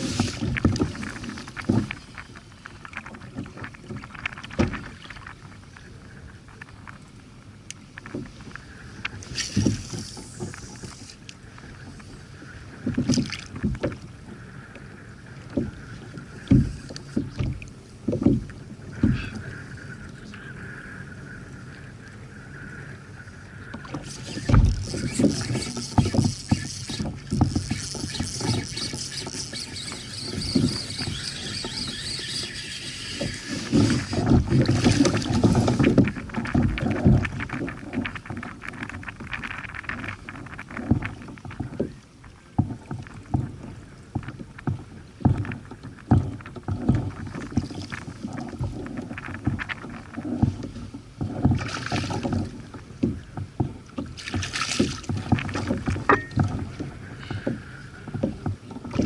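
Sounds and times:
small knocks on hull: 0.0s - 2.0s, 2.8s - 5.5s, 12.8s - 14.1s, 15.5s - 19.4s, 23.8s - 32.2s, 33.2s - 59.0s
water lapping against kayak hull: 0.0s - 59.0s.

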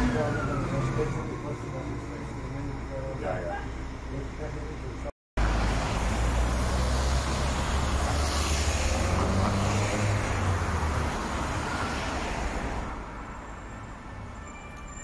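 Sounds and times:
vehicle passing by: 5.4s - 12.8s.

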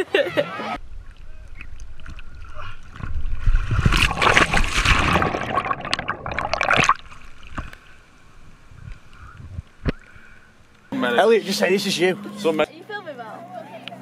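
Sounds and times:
water rushing and splashing: 0.8s - 10.0s.

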